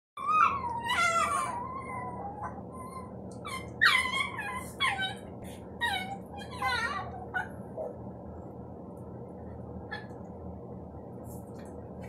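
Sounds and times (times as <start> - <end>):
small dog whining: 0.2 - 8.0.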